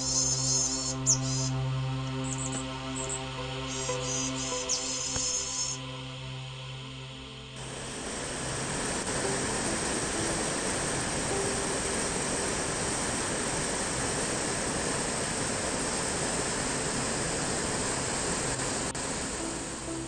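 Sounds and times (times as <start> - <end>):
stream rushing over boulders: 7.6 - 20.0.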